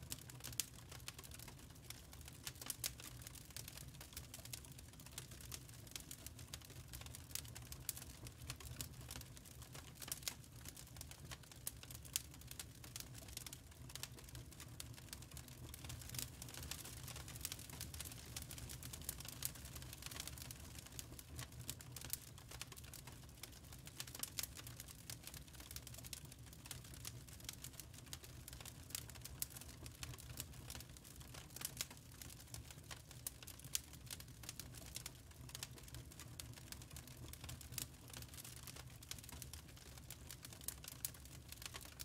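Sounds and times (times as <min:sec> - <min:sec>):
wood fire crackling: 0:00.0 - 0:42.0.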